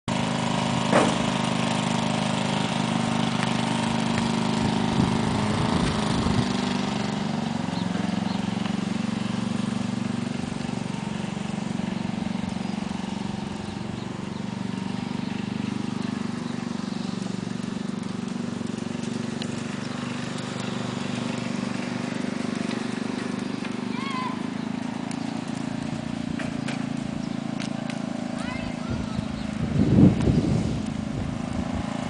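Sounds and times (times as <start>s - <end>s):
engine running: 0.0s - 32.0s
sharp knocks: 0.9s - 1.3s.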